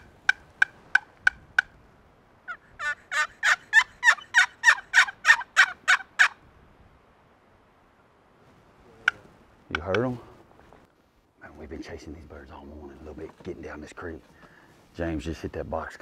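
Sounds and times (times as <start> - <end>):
turkey box call yelps: 0.0 - 1.7, 2.5 - 6.4.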